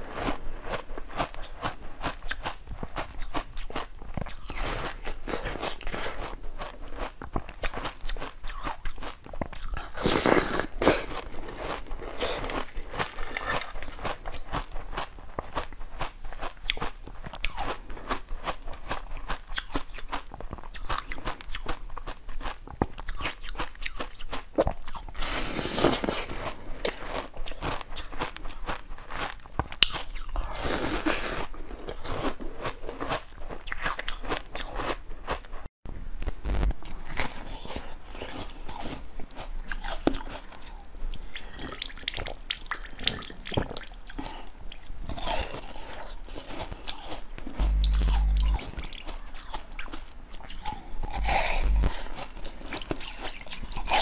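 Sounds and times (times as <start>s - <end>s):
person chewing bread: 0.0s - 35.7s, 36.5s - 54.0s
person biting into bun: 45.1s - 53.2s.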